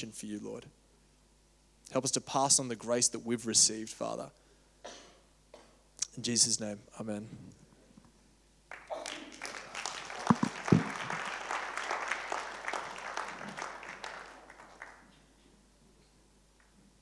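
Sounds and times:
congregation applauding: 8.7 - 15.4
low thumps: 10.3 - 11.2.

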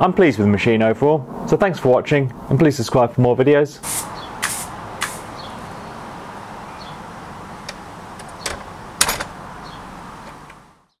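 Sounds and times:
steady background hiss: 0.0 - 10.9
wooden door shutting: 7.6 - 9.4.

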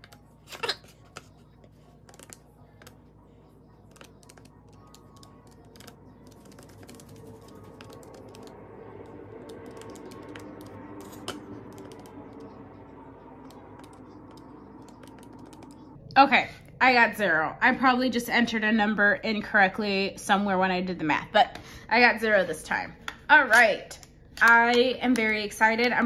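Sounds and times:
low steady hum: 0.0 - 26.0
calculator keys tapping: 3.9 - 8.5.

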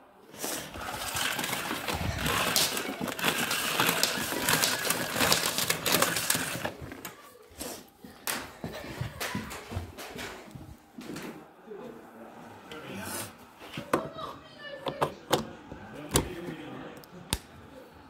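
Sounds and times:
handling rustling and clicking: 0.5 - 7.3.

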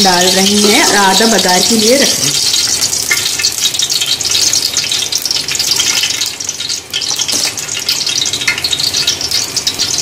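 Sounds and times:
oil sizzling in a pot: 0.0 - 10.0.

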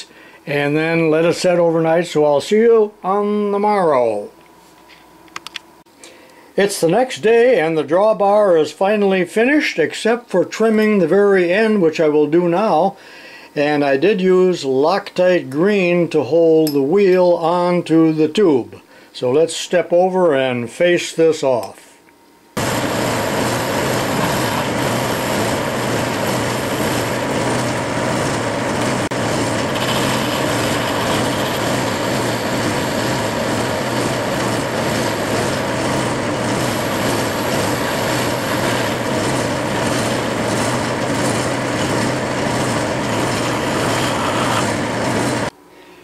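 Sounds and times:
metal lathe cutting: 22.6 - 45.5.

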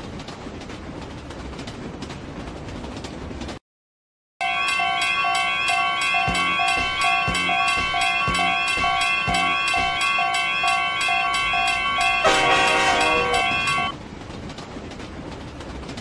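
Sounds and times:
railroad crossing alarms ringing: 4.4 - 14.0
low knocks: 6.3 - 10.1.

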